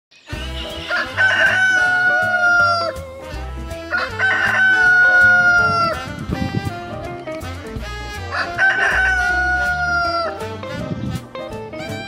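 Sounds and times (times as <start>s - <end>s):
band music with bass line: 0.2s - 12.0s
rooster crowing: 0.9s - 3.0s, 3.9s - 6.0s, 8.3s - 10.4s.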